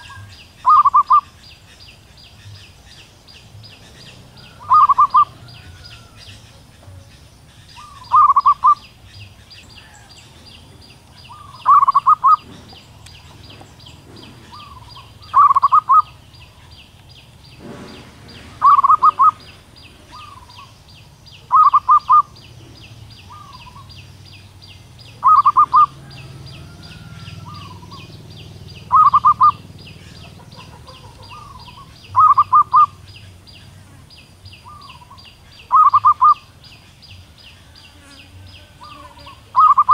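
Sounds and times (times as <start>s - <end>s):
dove cooing: 0.0s - 1.4s, 3.7s - 16.7s, 17.6s - 20.8s, 21.4s - 24.0s, 25.1s - 33.3s, 34.6s - 36.5s, 38.7s - 39.9s.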